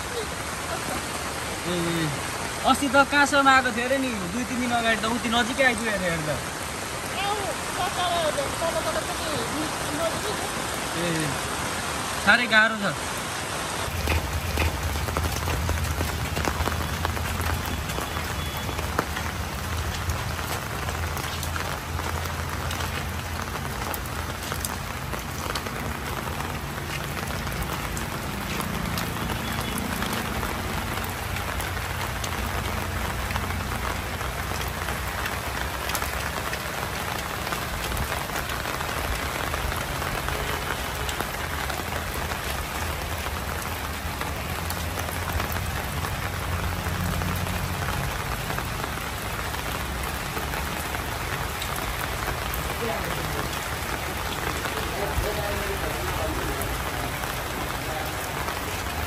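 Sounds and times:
heavy rain: 0:00.0 - 0:59.0
raindrops ticking on surfaces: 0:00.0 - 0:59.0.

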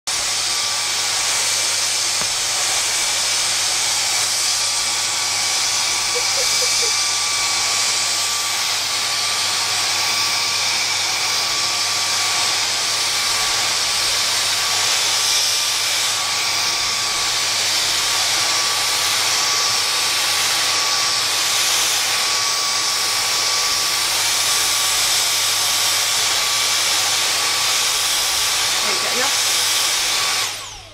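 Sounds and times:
vacuum cleaner running: 0:00.1 - 0:30.9.

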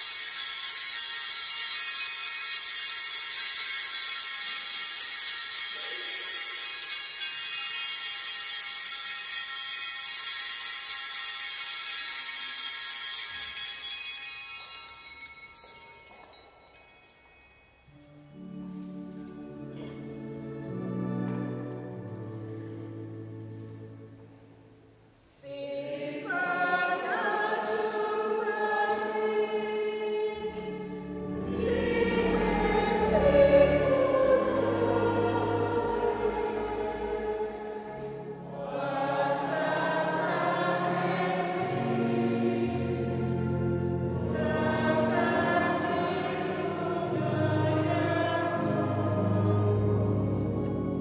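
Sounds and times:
choir singing a slow hymn: 0:25.2 - 0:51.0
low sustained bass: 0:30.8 - 0:37.6.

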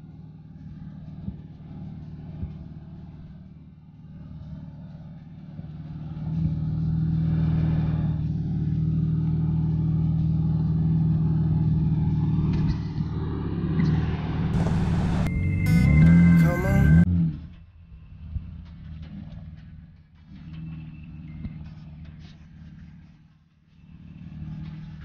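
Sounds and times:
truck engine pulling under load: 0:04.0 - 0:17.1.

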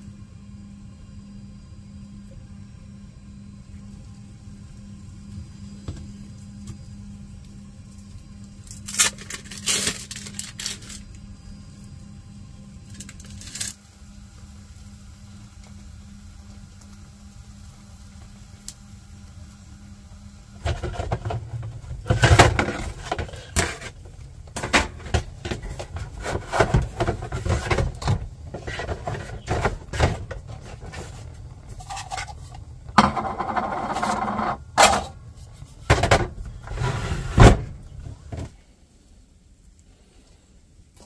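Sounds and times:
kitchenware knocks and clunks: 0:33.0 - 0:35.1.

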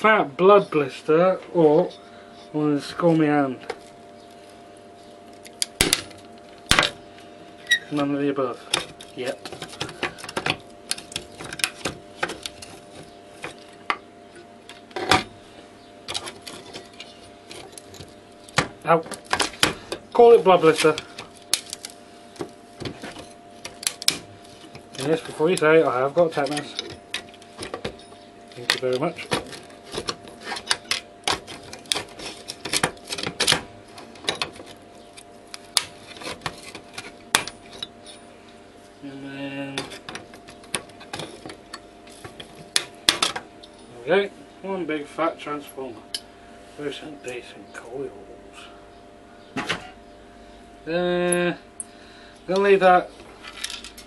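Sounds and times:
pincers clicking and scraping on metal: 0:07.7 - 0:14.0, 0:16.1 - 0:38.2.

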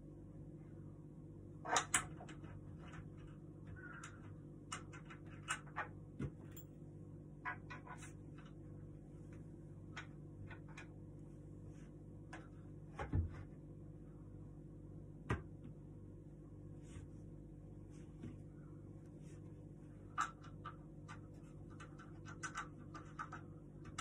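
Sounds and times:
steady low hum: 0:00.0 - 0:24.0
wooden parts clicking and knocking: 0:20.1 - 0:24.0.

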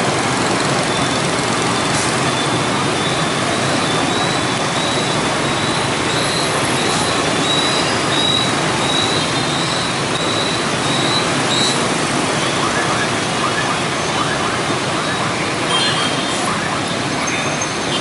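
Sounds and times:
bus passing: 0:00.0 - 0:13.2
scooter engines: 0:00.0 - 0:18.0.

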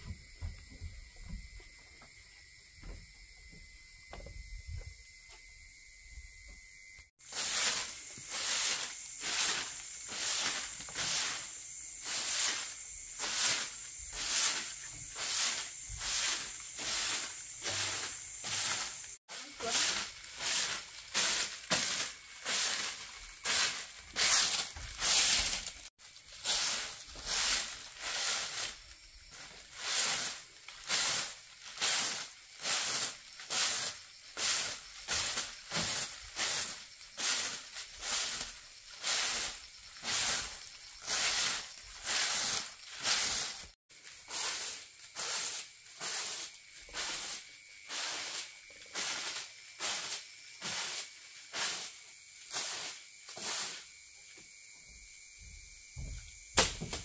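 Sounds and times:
hand tool rasping wood: 0:07.3 - 0:25.8.

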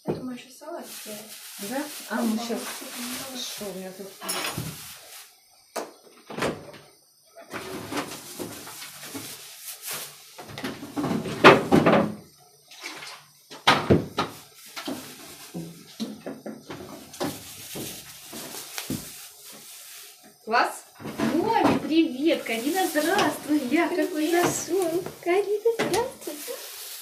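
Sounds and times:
knocks and rustles at a counter: 0:04.2 - 0:05.0, 0:07.5 - 0:19.7, 0:21.0 - 0:22.0, 0:23.0 - 0:26.2.

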